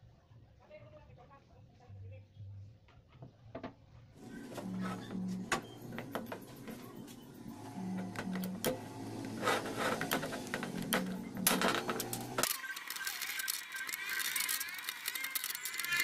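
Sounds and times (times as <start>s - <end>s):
low steady hum: 4.2s - 12.4s.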